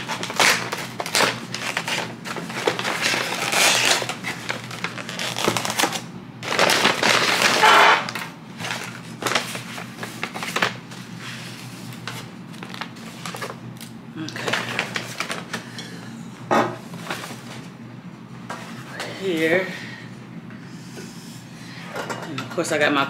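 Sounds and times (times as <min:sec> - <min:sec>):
paper bag crinkling: 0:00.0 - 0:15.6.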